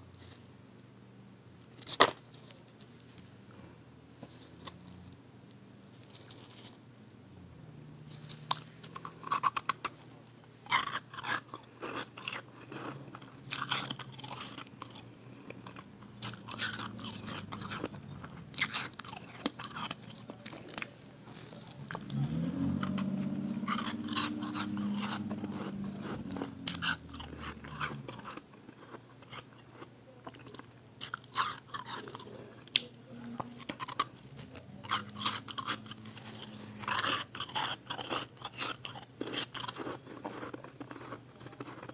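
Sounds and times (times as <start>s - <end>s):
ice being chewed: 6.0s - 6.8s, 8.0s - 41.9s
low hum: 20.0s - 28.5s.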